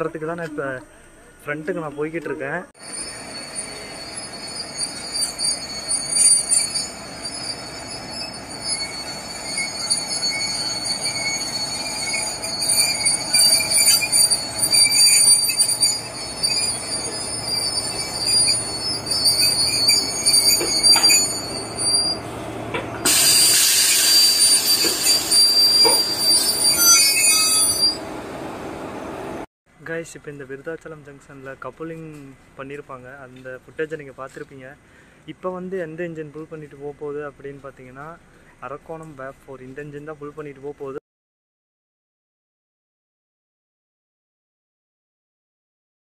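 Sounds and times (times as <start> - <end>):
train wheels squealing: 2.8 - 28.1.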